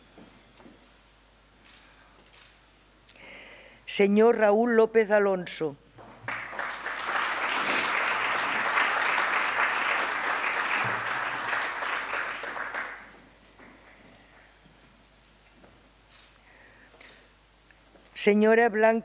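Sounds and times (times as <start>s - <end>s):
audience applauding: 6.0s - 13.2s.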